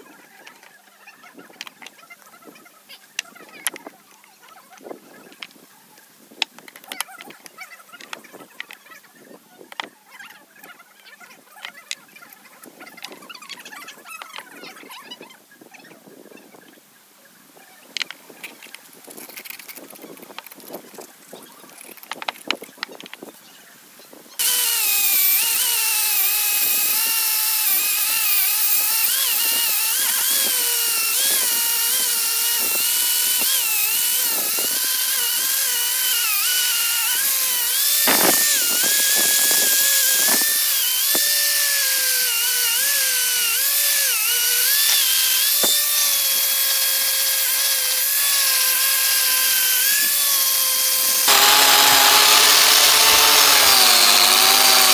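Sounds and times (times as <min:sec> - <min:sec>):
angle grinder wire wheel on metal: 0:24.4 - 0:54.9.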